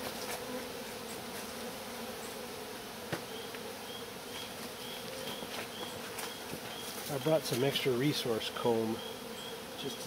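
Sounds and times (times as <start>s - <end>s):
bees buzzing: 0.0s - 10.0s.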